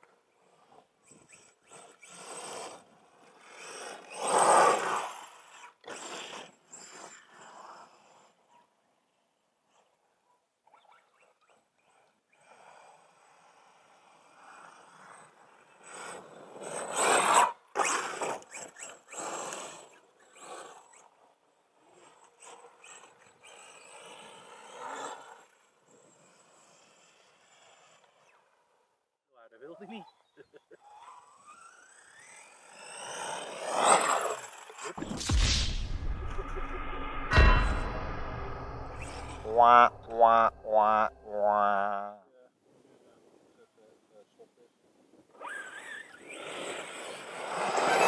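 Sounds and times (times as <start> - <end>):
rc car motor whirring: 0.0 - 29.0, 29.7 - 35.0, 45.3 - 48.0
rc car landing thud: 34.9 - 40.4.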